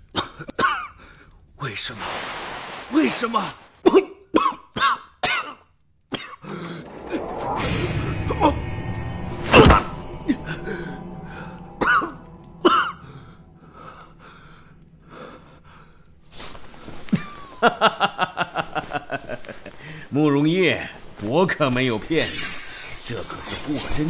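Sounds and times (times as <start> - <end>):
man coughing: 3.8 - 6.5, 11.8 - 13.3
background music with sustained tones: 6.2 - 21.6.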